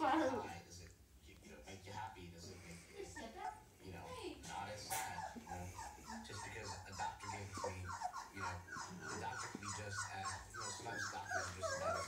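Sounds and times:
small dogs whining: 0:04.9 - 0:12.0.

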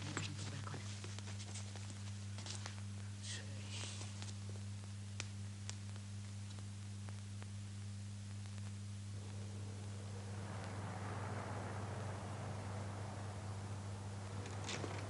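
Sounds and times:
film soundtrack hiss: 0:00.0 - 0:15.0
low steady hum: 0:00.0 - 0:15.0
soft rushing noise: 0:08.8 - 0:15.0.

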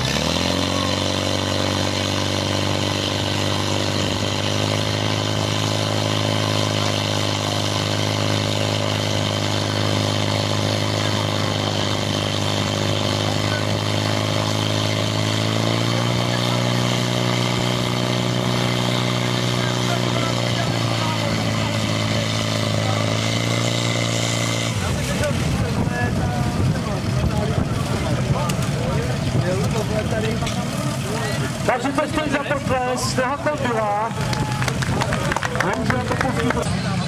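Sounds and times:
pump engine high-revving drone: 0:00.0 - 0:37.0.

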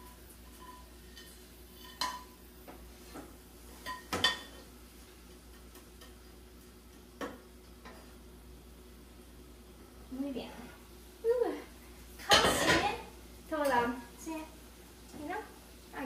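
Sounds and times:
spatula scraping frying pan: 0:00.4 - 0:02.4.

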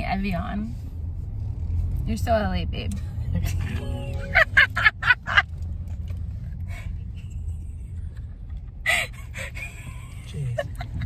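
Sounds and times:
car cabin rumble: 0:00.0 - 0:11.0
woman laughing: 0:04.3 - 0:05.4.

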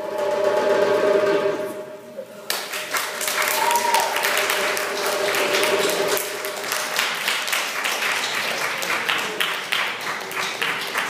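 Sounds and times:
audience clapping: 0:02.5 - 0:11.0.

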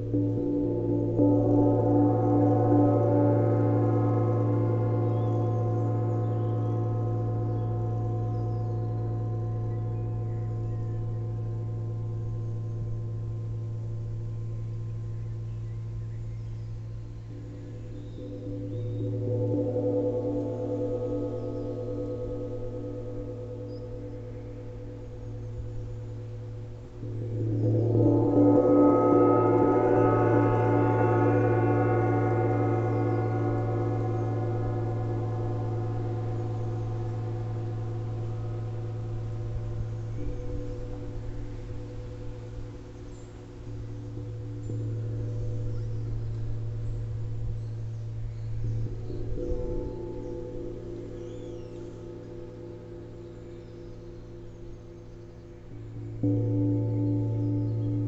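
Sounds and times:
light mallet strokes: 0:00.0 - 0:58.0
gong ringing: 0:27.0 - 0:47.7.

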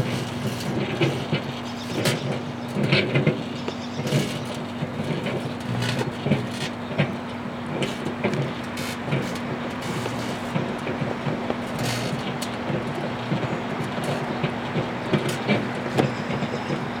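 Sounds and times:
microwave oven humming: 0:00.0 - 0:17.0.

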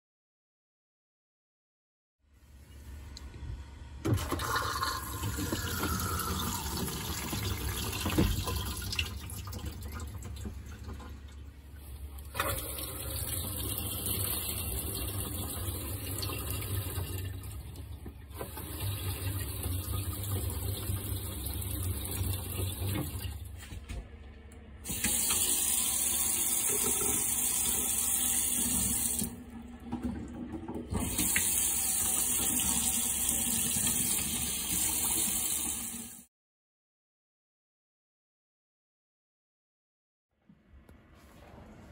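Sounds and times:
low steady hum: 0:02.2 - 0:24.9
toilet flushing: 0:04.0 - 0:36.3
faucet running into metal sink: 0:04.1 - 0:11.2, 0:12.2 - 0:23.4, 0:24.9 - 0:36.2
shower hose running: 0:04.2 - 0:10.6, 0:11.8 - 0:17.4, 0:18.3 - 0:23.4, 0:24.9 - 0:29.5, 0:30.9 - 0:36.3.

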